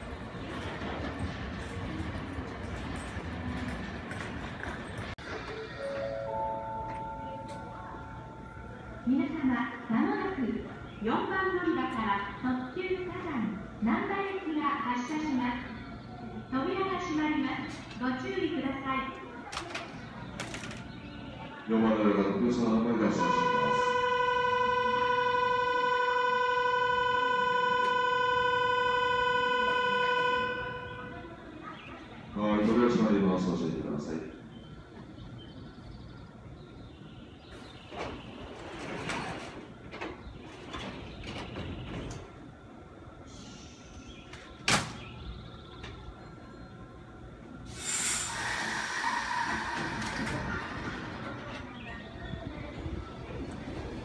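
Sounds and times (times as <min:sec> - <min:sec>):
train pulling away with whine: 0:00.0 - 0:18.3, 0:20.1 - 0:54.0
air hiss: 0:47.7 - 0:50.5.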